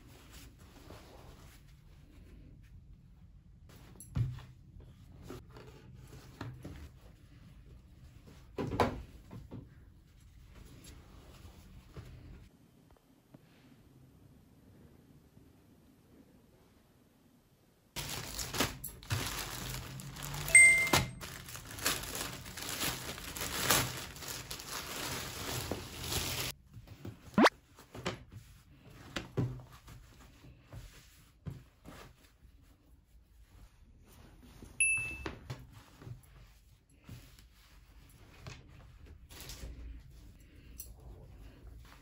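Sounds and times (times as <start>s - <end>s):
fabric rustling: 18.0s - 34.8s
short chime-like tones: 20.5s - 21.2s, 34.8s - 35.3s.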